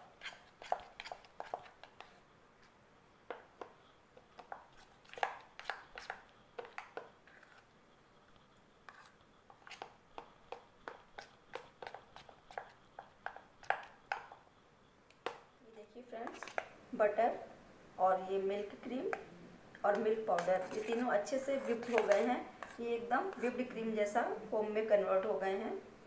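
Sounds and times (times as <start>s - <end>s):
utensil scraping bowl: 0.0s - 2.2s, 4.3s - 7.7s, 8.9s - 14.4s, 16.2s - 16.7s, 18.7s - 23.8s.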